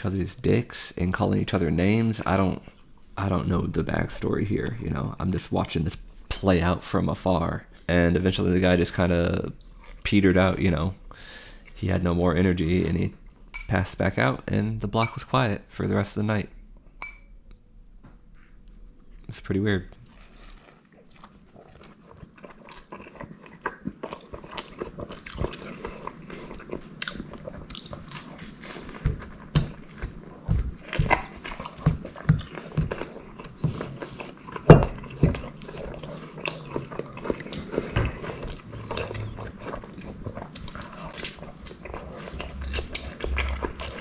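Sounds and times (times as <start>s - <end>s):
person biting and chewing: 20.0s - 44.0s.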